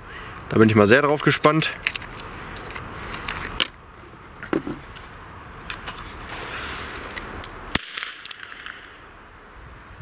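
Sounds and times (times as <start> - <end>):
sharp gunshot: 7.7 - 9.1.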